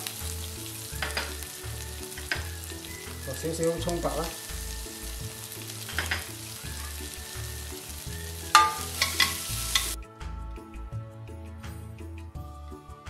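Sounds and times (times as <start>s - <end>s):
onion sizzling in hot oil: 0.0s - 10.0s
soft background music: 0.0s - 13.0s
spatula clanking in a wok: 1.0s - 3.2s, 5.8s - 6.4s, 8.4s - 10.0s.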